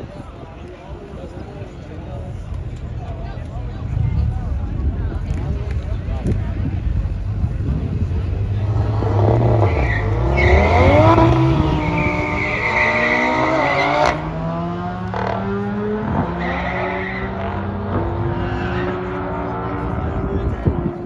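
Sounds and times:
engines revving hard: 7.3s - 21.0s
tyre squeal: 9.6s - 14.2s.

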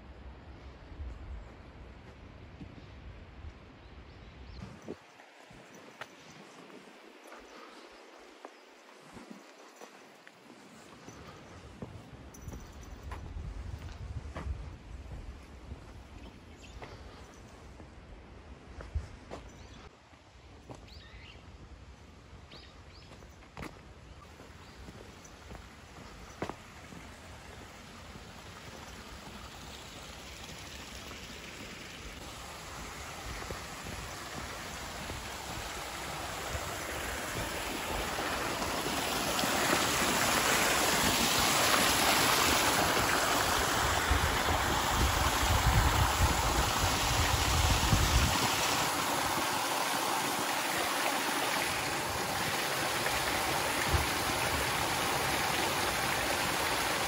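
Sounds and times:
water splashing into a pool: 26.4s - 57.0s.

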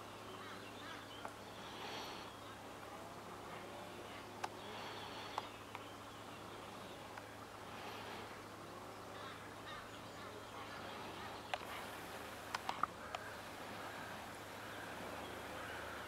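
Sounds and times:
steady low hum: 0.0s - 16.0s
light clicks: 12.5s - 13.3s.

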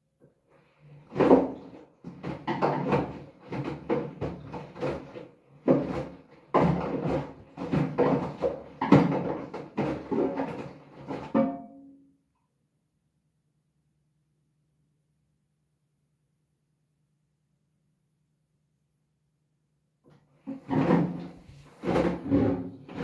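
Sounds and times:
heavy load thudding in washer drum: 1.1s - 11.7s, 20.4s - 23.0s.

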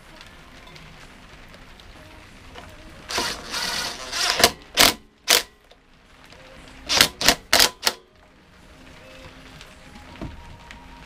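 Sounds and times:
cordless driver bursts: 3.1s - 5.5s, 6.9s - 8.0s.

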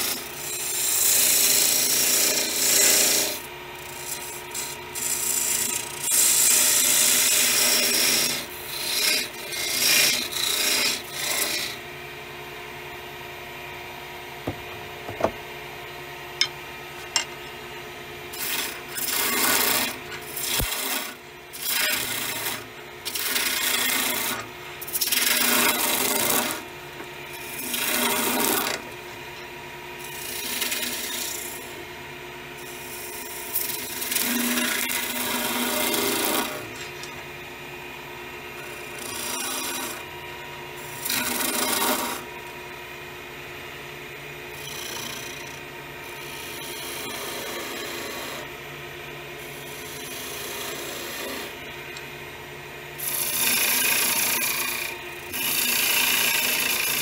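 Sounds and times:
chisel hissing on spinning wood: 0.0s - 11.7s, 53.0s - 57.0s.

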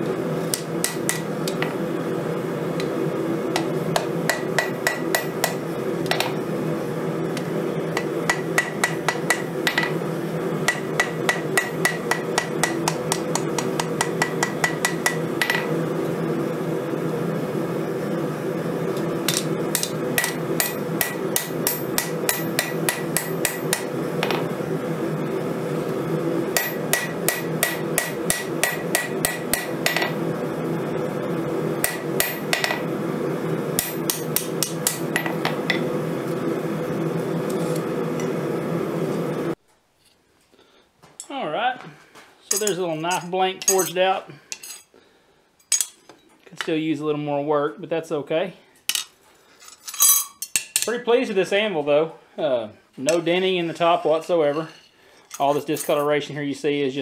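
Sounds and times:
steady low hum: 0.0s - 39.6s
hammer ringing on anvil: 8.3s - 10.0s, 26.6s - 30.2s.

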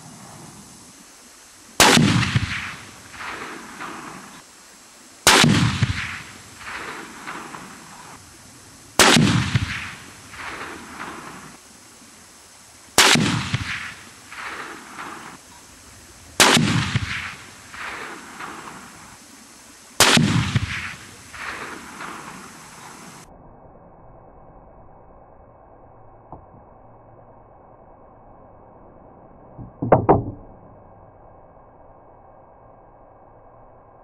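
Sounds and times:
rifle shots with echoes: 1.8s - 4.4s, 5.3s - 8.2s, 9.0s - 11.5s, 13.0s - 15.4s, 16.4s - 19.0s, 20.0s - 22.8s.

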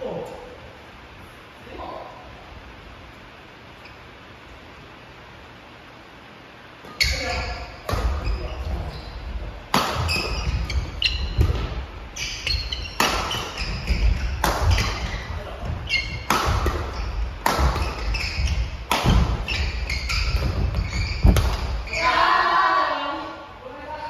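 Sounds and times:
racket hitting shuttlecock: 9.7s - 21.9s
shoe squeaks on court: 10.0s - 11.4s, 12.2s - 16.3s, 17.8s - 22.1s.

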